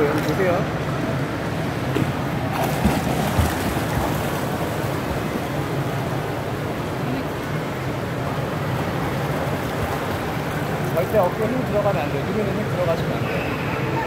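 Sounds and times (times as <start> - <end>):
feet splashing water: 2.0 - 6.1.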